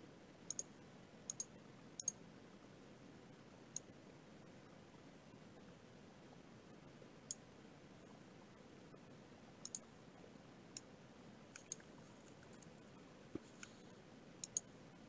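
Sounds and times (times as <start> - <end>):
computer mouse clicks: 0.5 - 0.7, 1.3 - 2.2, 9.6 - 9.9, 11.6 - 12.7, 13.4 - 14.7.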